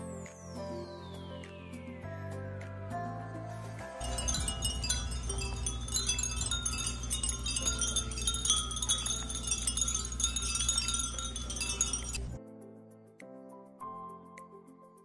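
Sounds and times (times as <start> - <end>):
glass wind chimes tinkling: 4.0 - 12.4.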